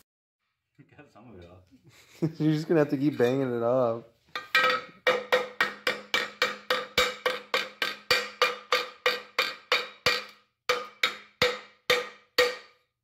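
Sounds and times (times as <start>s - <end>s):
hammer striking metal pipe: 4.4s - 12.9s.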